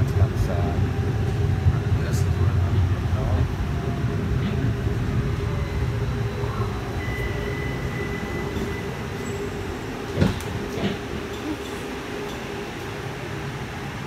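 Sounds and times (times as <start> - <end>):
streetcar rumbling: 0.0 - 14.0
steady high tone: 3.8 - 10.1.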